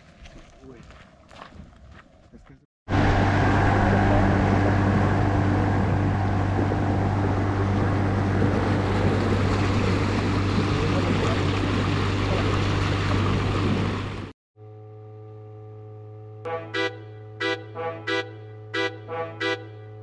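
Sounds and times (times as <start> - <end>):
wind: 0.0 - 20.0
water rushing: 2.9 - 14.3
outboard motor droning: 2.9 - 20.0.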